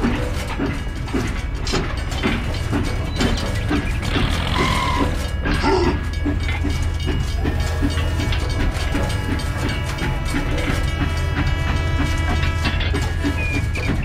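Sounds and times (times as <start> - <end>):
background music: 1.4 - 14.0
toy train motor whirring: 4.0 - 5.8.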